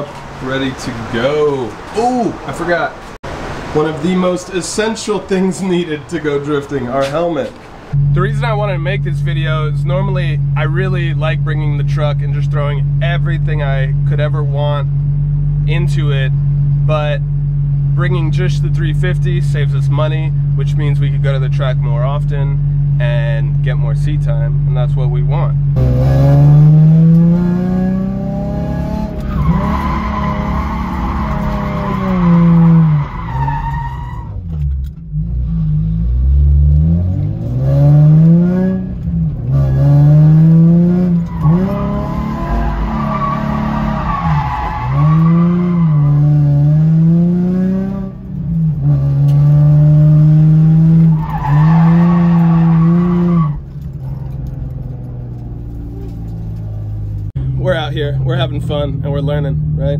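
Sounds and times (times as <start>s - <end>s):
car engine revving: 0.0s - 59.9s
tyres squealing: 28.6s - 34.6s, 39.4s - 46.5s, 50.3s - 56.8s.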